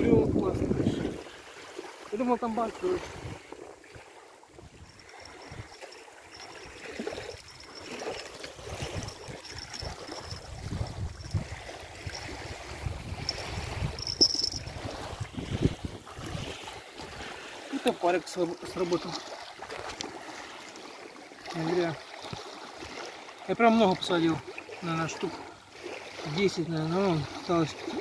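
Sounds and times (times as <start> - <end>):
wind buffeting microphone: 0.0 - 1.4, 2.9 - 3.6, 6.4 - 17.4.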